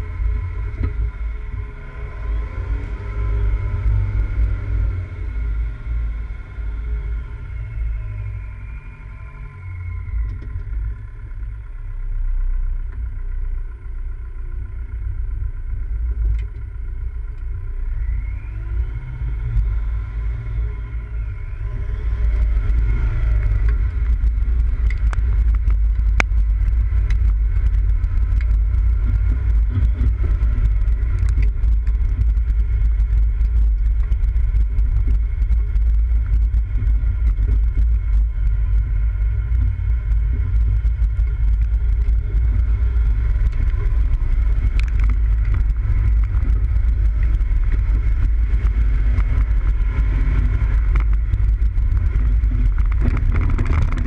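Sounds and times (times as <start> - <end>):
off-road vehicle engine rumble: 0.0 - 54.0
sharp clicks from bumpy ground: 23.4 - 38.9, 39.5 - 54.0.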